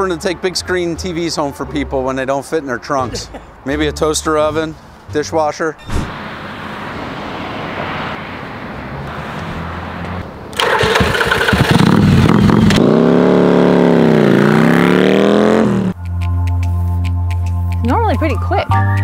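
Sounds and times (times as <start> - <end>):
motorcycle engine revving: 9.3 - 16.0.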